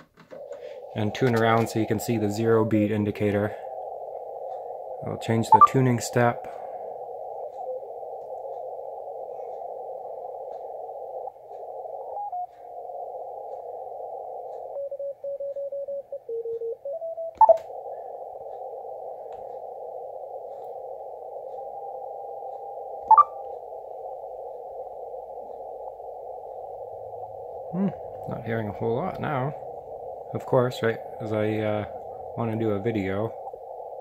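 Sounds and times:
faint morse carriers: 0.0 - 34.0
radio hiss: 0.3 - 15.7, 17.4 - 34.0
loud radio chirps: 0.4 - 14.8, 17.4 - 34.0
keyed morse beeps: 4.6 - 6.3, 14.7 - 17.6, 23.0 - 23.6.

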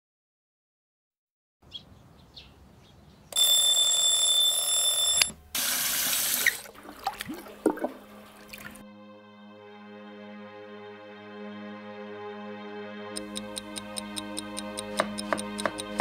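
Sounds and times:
tap water running into sink: 5.6 - 7.9
water splashing on face: 5.6 - 8.8
soft music with held notes: 7.5 - 16.0
click: 13.2 - 16.0.

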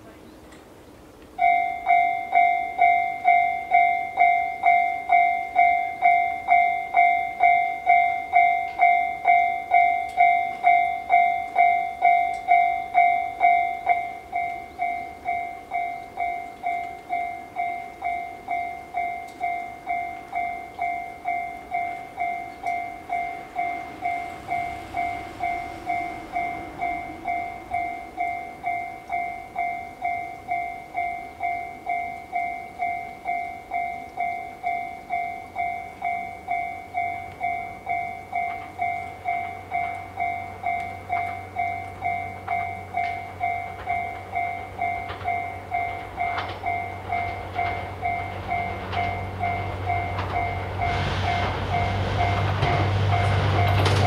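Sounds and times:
level crossing bell dinging: 1.4 - 52.5.

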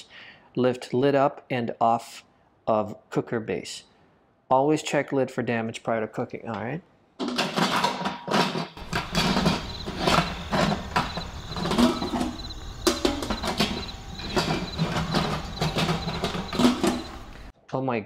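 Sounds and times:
plastic lid clattering on rim: 7.2 - 17.5.

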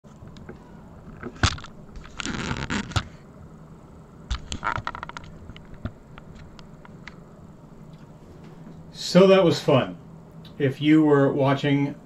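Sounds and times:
rustling and scraping: 0.1 - 3.2, 4.3 - 7.2.

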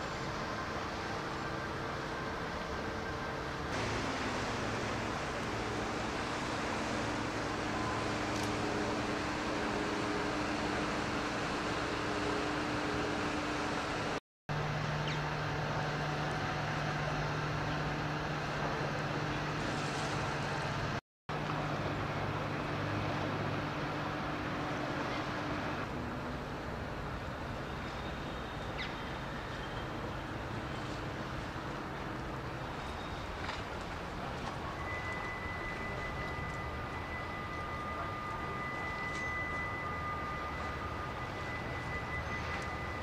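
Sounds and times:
low mechanical hum: 0.0 - 43.0
wash of noise: 0.1 - 27.2.

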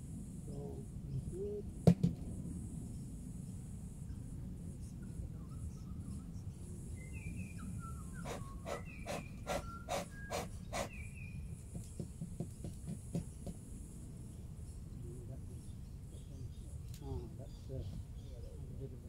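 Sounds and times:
high insect hum: 0.0 - 19.0
sharp knocks: 1.9 - 2.2
short chirping calls: 5.4 - 11.5.

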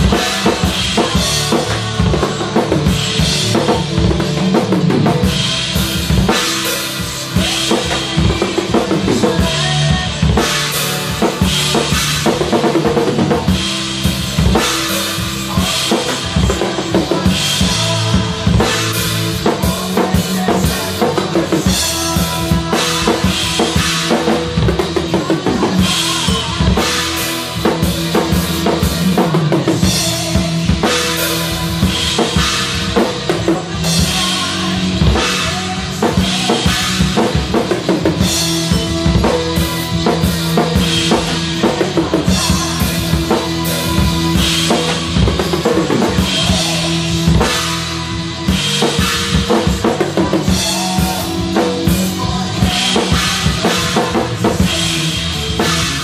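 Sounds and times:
drum kit played hard: 0.0 - 56.0.

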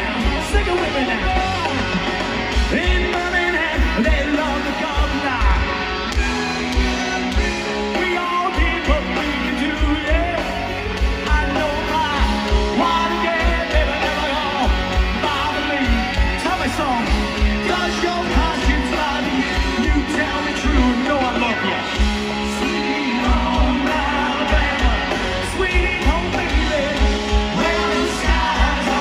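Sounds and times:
man singing: 0.0 - 5.8, 6.5 - 29.0
live rock band playing: 0.0 - 29.0.

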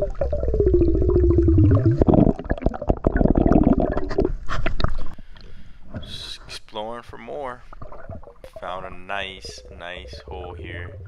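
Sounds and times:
air bubbling underwater: 0.0 - 5.1, 7.8 - 11.0.

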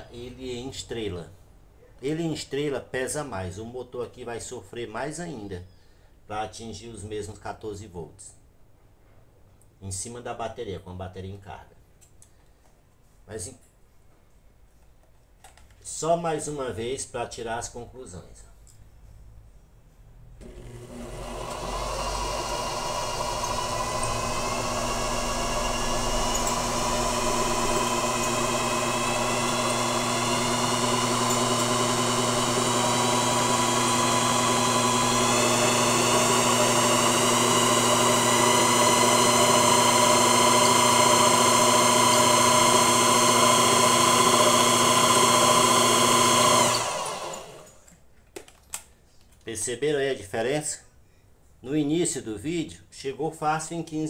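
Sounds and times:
electric motor whining: 20.4 - 47.8.

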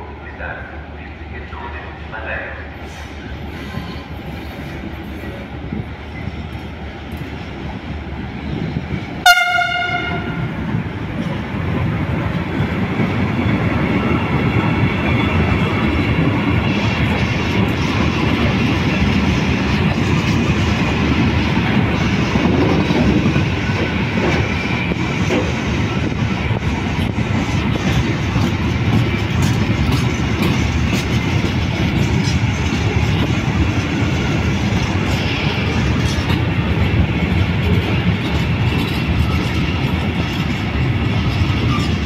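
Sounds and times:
freight train rumbling past: 0.0 - 42.0
locomotive horn blast: 9.2 - 10.5.

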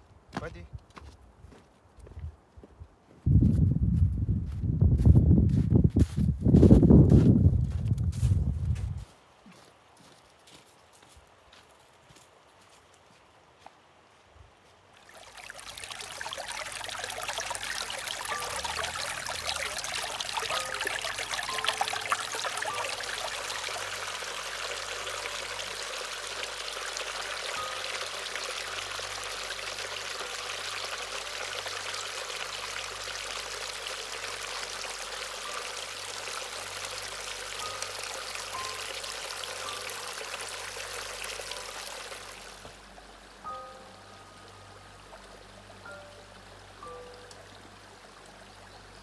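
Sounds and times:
stream trickling over rocks: 14.9 - 49.0.

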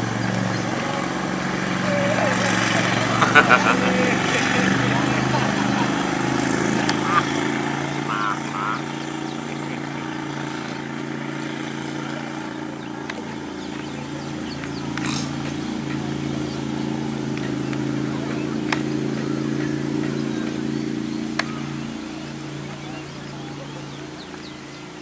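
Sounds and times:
engine running steadily: 0.0 - 25.0
faint sharp clicks: 18.6 - 18.9.

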